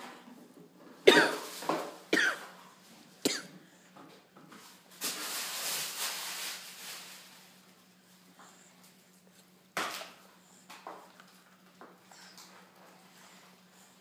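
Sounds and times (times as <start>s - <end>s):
person coughing: 1.1s - 1.5s, 2.2s - 2.5s, 3.2s - 3.6s.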